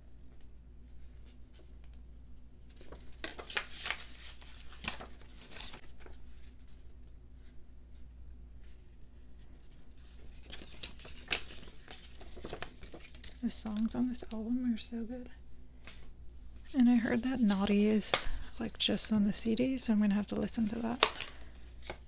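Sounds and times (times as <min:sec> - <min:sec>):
faint low hum: 0:00.0 - 0:22.0
paper and card rustling: 0:02.6 - 0:14.8, 0:16.7 - 0:19.2, 0:20.3 - 0:22.0.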